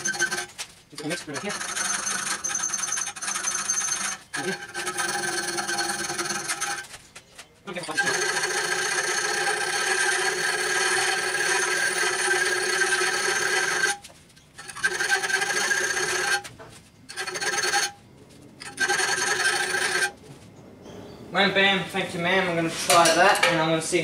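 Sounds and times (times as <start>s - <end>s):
file rasping in steel: 0.0s - 6.9s, 7.8s - 14.0s, 14.6s - 16.5s, 17.1s - 18.0s, 18.6s - 20.2s.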